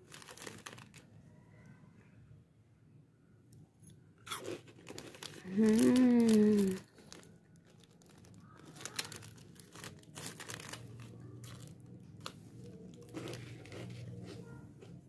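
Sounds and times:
plastic snack wrapper crackling: 0:00.0 - 0:01.1, 0:04.2 - 0:14.3.

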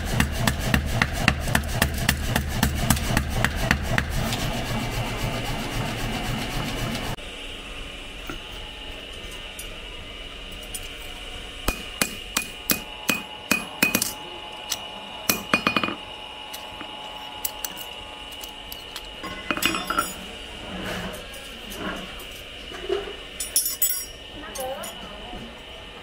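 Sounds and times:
hammer striking steel: 0:11.6 - 0:14.2, 0:15.2 - 0:16.0.

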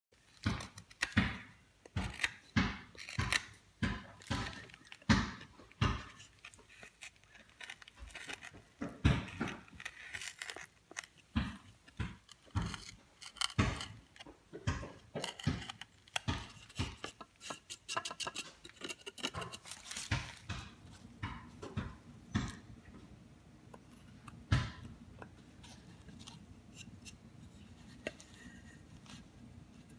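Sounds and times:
knife cutting and scraping wood: 0:00.2 - 0:22.7, 0:23.6 - 0:29.9.

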